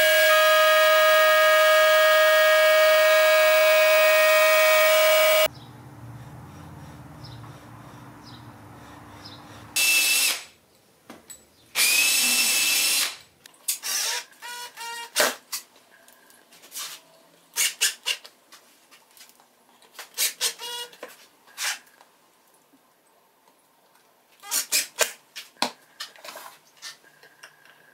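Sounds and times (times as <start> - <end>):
cordless drill driving screws: 0.0 - 5.5, 11.8 - 13.2.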